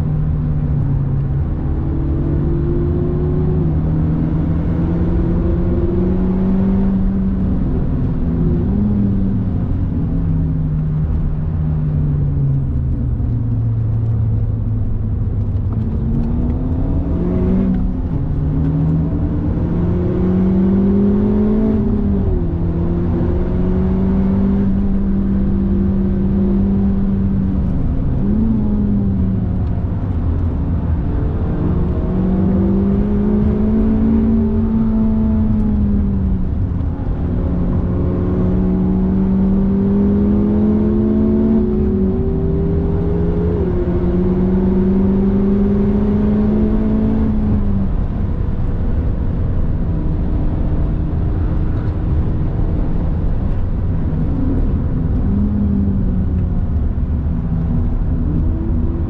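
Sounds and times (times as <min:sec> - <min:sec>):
car engine accelerating: 0:00.0 - 0:59.0
road and tyre rumble: 0:00.0 - 0:59.0.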